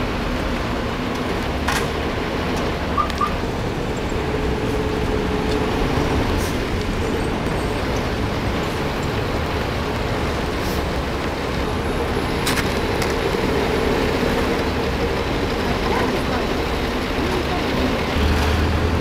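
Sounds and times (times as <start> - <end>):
engine hum: 0.0 - 19.0
street traffic rumble: 0.0 - 19.0.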